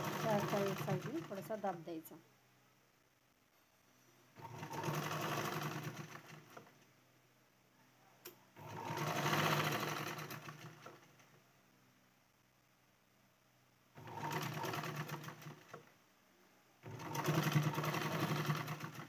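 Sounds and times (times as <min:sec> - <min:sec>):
sewing machine stitching: 0:00.0 - 0:01.7, 0:04.4 - 0:06.8, 0:08.6 - 0:11.3, 0:14.0 - 0:15.9, 0:16.8 - 0:19.0.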